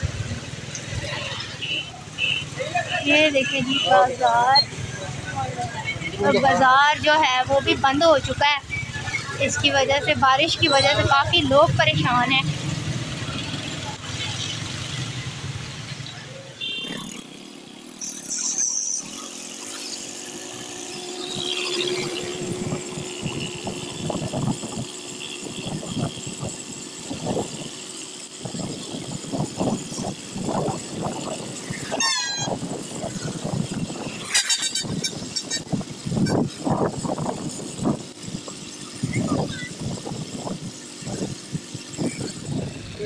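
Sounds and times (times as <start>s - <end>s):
motorcycle engine: 0.0s - 43.0s
wind buffeting: 20.4s - 27.8s, 28.4s - 34.2s, 34.8s - 43.0s.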